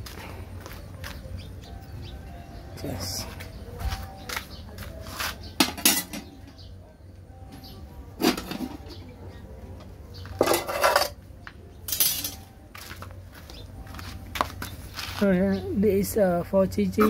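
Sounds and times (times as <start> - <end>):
metal pots clanking: 5.6 - 6.4, 8.2 - 9.1, 10.4 - 11.2, 11.9 - 12.4.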